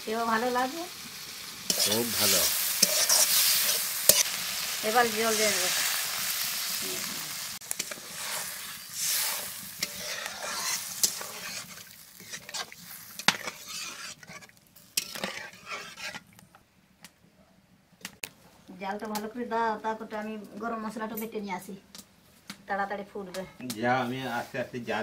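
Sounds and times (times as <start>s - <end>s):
curry sizzling in a wok: 0.0s - 16.5s
metal spatula scraping a pan: 1.7s - 6.0s, 7.7s - 16.3s.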